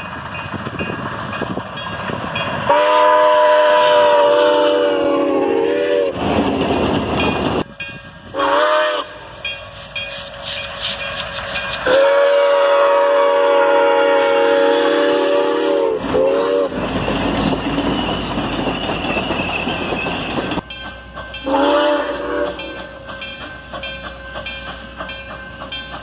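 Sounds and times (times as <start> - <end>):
crossing bell ringing: 0.0 - 2.9, 7.1 - 12.1, 16.7 - 26.0
train rumbling past on rails: 0.0 - 26.0
train chime horn: 2.4 - 6.2, 7.2 - 10.2, 11.5 - 17.2, 17.9 - 25.9.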